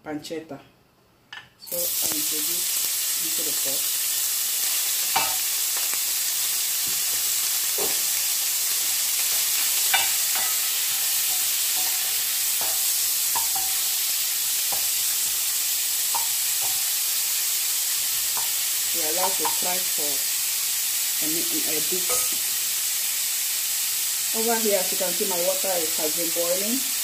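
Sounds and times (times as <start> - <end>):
meat sizzling in oil: 1.7 - 27.0
wooden spoon scraping and knocking pan: 6.9 - 8.1.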